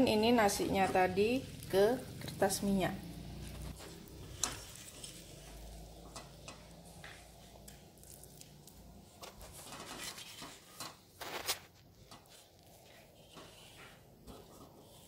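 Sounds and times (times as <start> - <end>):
spatula scraping dough: 3.3 - 15.0.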